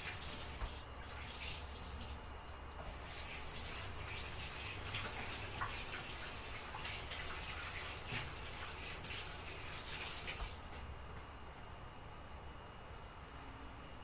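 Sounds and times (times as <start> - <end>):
tap water running into sink: 0.0 - 10.8.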